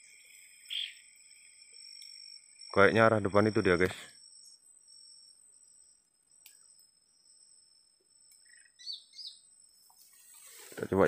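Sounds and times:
bird chirps: 0:00.0 - 0:02.8, 0:08.0 - 0:10.6
insect chirring: 0:00.0 - 0:11.0.

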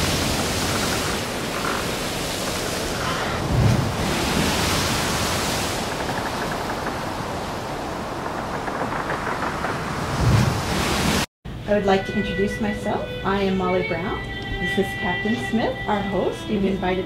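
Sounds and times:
ocean waves surging: 0:00.0 - 0:11.3.

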